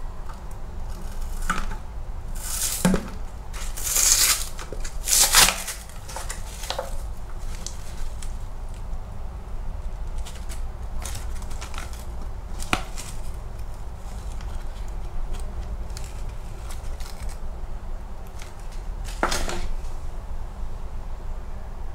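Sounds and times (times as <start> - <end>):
foil and paper crinkling: 2.4 - 8.8, 9.9 - 17.4.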